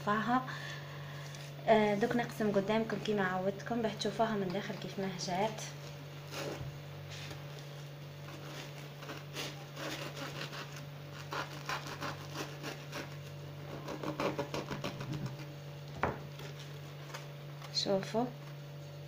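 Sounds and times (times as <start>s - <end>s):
knife sawing through bread crust: 8.2s - 15.5s.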